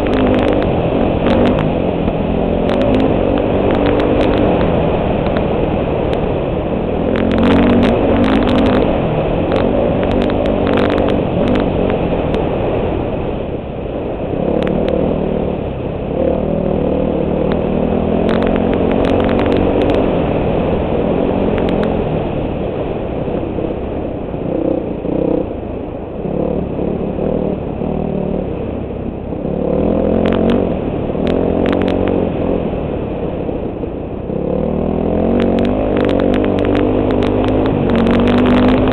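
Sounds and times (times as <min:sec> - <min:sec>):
sharp clicks and knocks: 0:00.0 - 0:01.8, 0:02.6 - 0:05.5, 0:07.1 - 0:12.5, 0:17.5 - 0:20.1, 0:21.6 - 0:21.9, 0:31.2 - 0:32.1, 0:35.3 - 0:38.9
dirt bike engine revving: 0:00.0 - 0:13.0, 0:14.3 - 0:22.2, 0:29.3 - 0:32.8, 0:34.3 - 0:38.9
wind rushing over microphone: 0:00.0 - 0:38.9.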